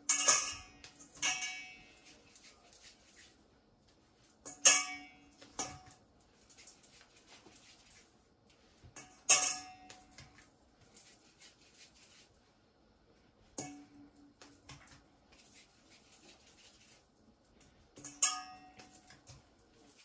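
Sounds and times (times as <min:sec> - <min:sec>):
metal bowl clanking: 0:00.0 - 0:03.1, 0:04.3 - 0:06.9, 0:08.9 - 0:10.4, 0:18.0 - 0:20.0
dough tapping and scraping: 0:00.0 - 0:12.4, 0:13.4 - 0:20.0.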